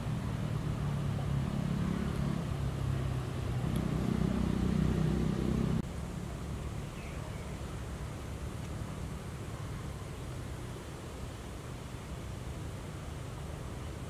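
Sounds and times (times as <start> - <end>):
engine running: 0.0 - 6.8
outdoor background noise: 0.0 - 14.0.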